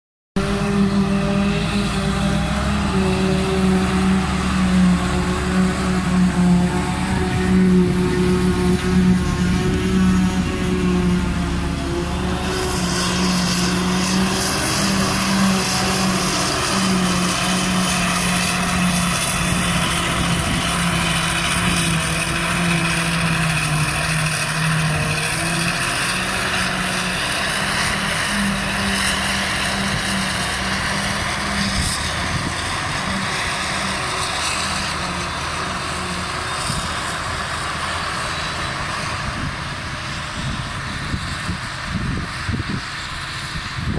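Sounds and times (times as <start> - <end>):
diesel engine: 0.4 - 43.9
tyre and wind noise: 39.0 - 43.9.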